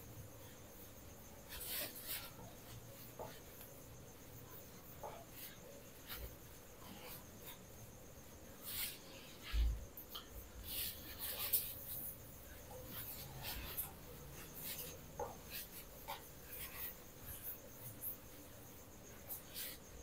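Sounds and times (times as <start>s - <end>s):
faint rubbing on a whiteboard: 0.5s - 20.0s.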